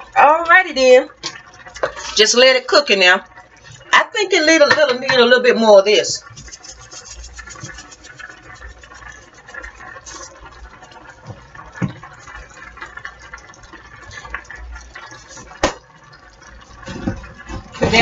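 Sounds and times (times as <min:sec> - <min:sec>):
sauce bubbling in a skillet: 0:00.0 - 0:18.0
seasoning being shaken: 0:06.0 - 0:11.2, 0:14.1 - 0:15.7.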